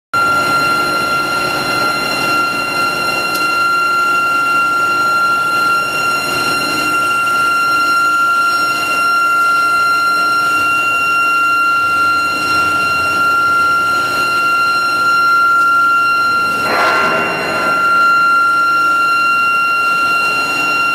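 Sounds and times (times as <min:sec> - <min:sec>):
high-pitched induction coil whine: 0:00.2 - 0:20.9
machinery noise: 0:16.4 - 0:20.0.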